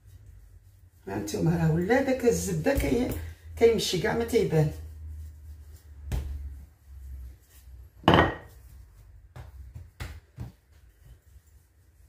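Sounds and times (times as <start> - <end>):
rolling pin knocking on countertop: 8.0 - 8.6.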